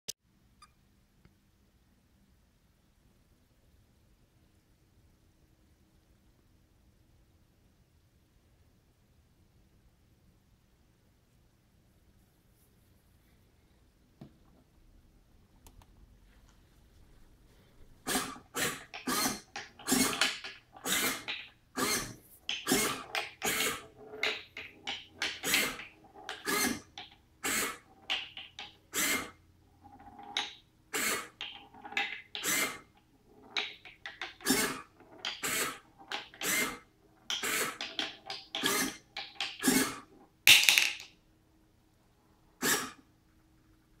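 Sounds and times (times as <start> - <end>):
servomotors whirring: 18.0 - 28.0, 30.9 - 40.0.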